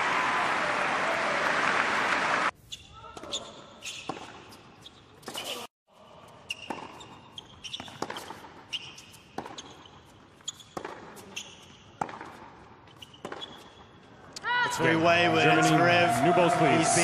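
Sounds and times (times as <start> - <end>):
shoes squeaking on court: 2.6 - 14.4
tennis ball bouncing: 6.5 - 13.9
rackets hitting tennis ball: 6.5 - 14.4.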